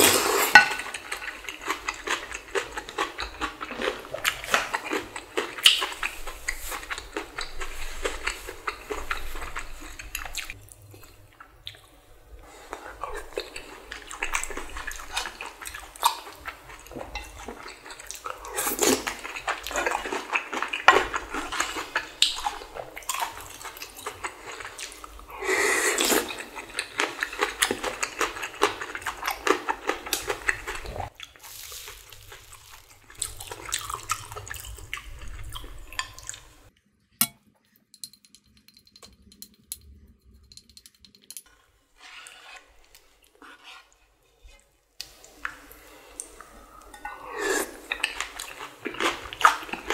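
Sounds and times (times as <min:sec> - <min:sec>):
chewing: 0:00.0 - 0:36.8, 0:42.8 - 0:49.9
slurping noodles: 0:24.4 - 0:35.3, 0:45.9 - 0:49.9.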